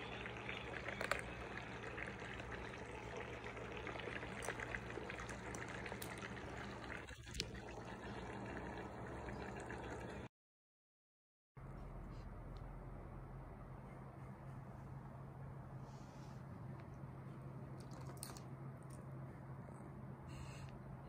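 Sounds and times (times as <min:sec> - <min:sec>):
water trickling: 0:00.0 - 0:10.3.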